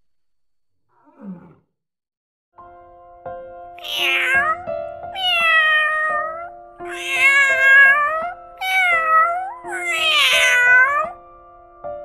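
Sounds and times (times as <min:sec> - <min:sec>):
background music: 0:02.6 - 0:12.0
cat meowing: 0:03.8 - 0:11.2.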